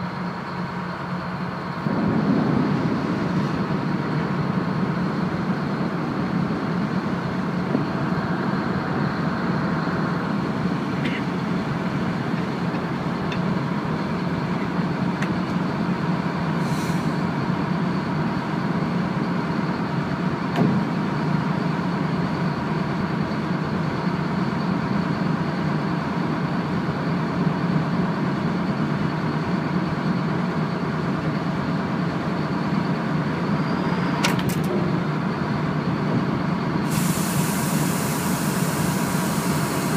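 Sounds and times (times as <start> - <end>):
boat engines rumbling: 0.0 - 39.9
hiss: 16.6 - 17.2, 36.8 - 39.9.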